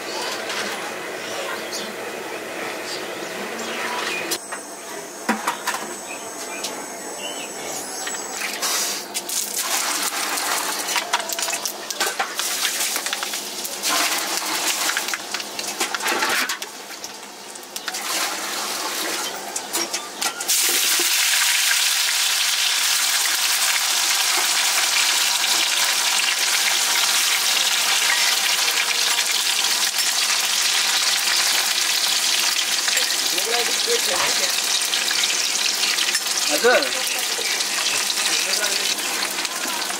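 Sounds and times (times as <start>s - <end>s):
food sizzling in hot oil: 8.3s - 19.5s, 20.4s - 39.9s.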